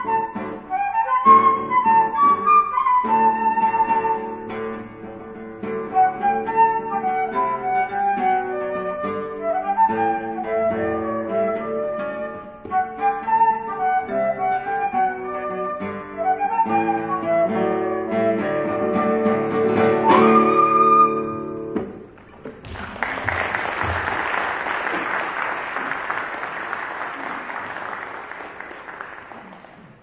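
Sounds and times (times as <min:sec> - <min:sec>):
flute playing: 0:00.0 - 0:21.9
classical guitar playing: 0:00.0 - 0:22.2
audience applause: 0:22.3 - 0:30.0.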